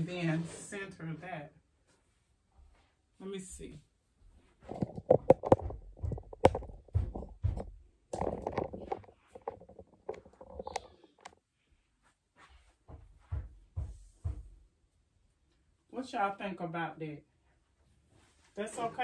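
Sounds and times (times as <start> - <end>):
decorations knocking and rustling: 4.4 - 11.4, 12.8 - 14.7.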